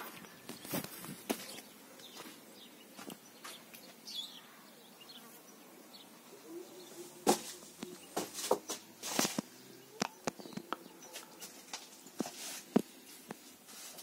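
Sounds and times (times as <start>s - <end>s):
footsteps on wooden floor: 7.2s - 9.4s.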